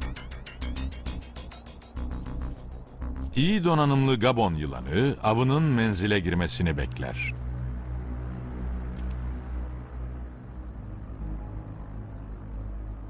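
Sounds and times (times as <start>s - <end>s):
low hum: 0.0s - 10.1s
insects buzzing high note: 0.0s - 13.0s.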